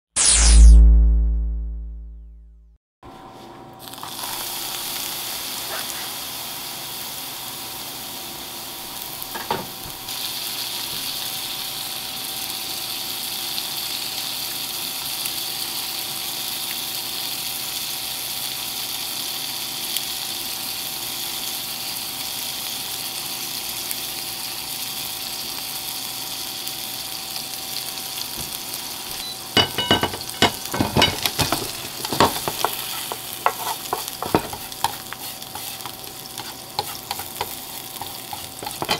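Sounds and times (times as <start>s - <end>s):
garlic sizzling in frying pan: 3.8s - 38.9s
chopsticks clattering against pan: 29.6s - 35.0s, 35.6s - 38.9s.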